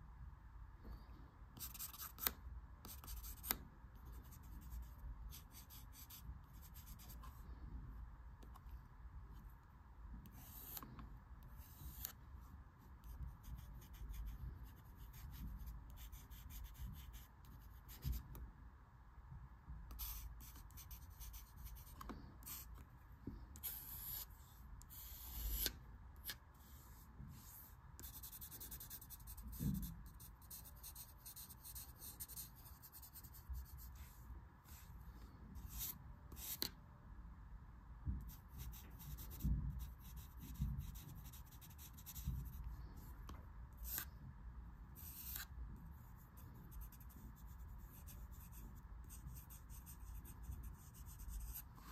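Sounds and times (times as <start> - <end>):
pencil scratching on paper: 1.6 - 7.4, 10.2 - 10.8, 11.5 - 12.2, 12.8 - 18.3, 19.9 - 22.8, 23.6 - 25.7, 26.6 - 34.8, 38.3 - 43.1, 43.8 - 44.1, 45.0 - 51.9.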